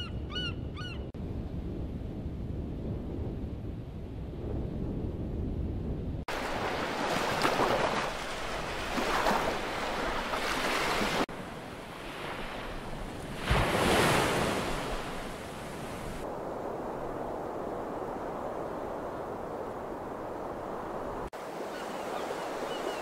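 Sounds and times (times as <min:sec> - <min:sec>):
low wind rumble: 0:00.0 - 0:10.4, 0:11.2 - 0:21.4
waves breaking: 0:06.3 - 0:23.0.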